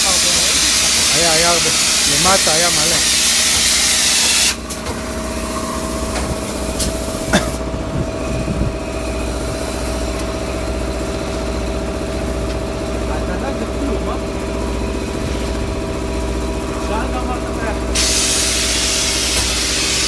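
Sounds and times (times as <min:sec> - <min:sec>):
spray gun hissing: 0:00.0 - 0:04.6, 0:17.9 - 0:20.0
engine hum with held tone: 0:00.0 - 0:20.0.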